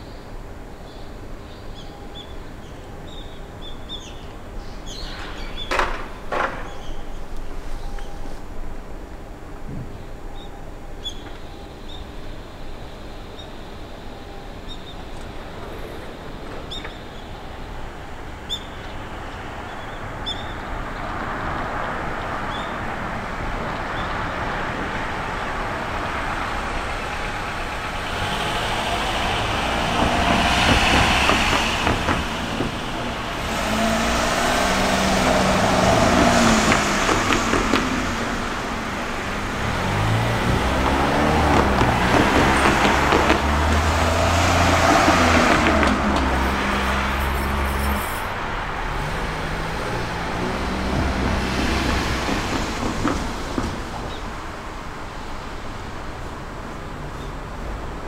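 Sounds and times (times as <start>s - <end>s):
cars driving past: 14.3s - 58.0s.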